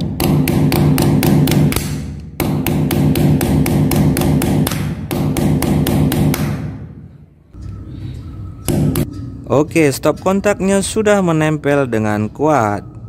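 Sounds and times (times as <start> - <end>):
hammer tapping nail: 0.0 - 6.7.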